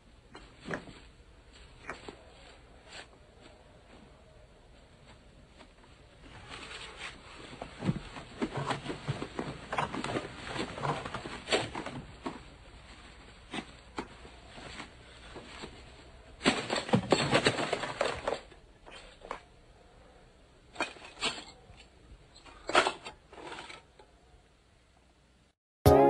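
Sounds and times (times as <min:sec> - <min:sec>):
film reels rustling and clattering: 0:06.3 - 0:19.4, 0:20.7 - 0:24.1.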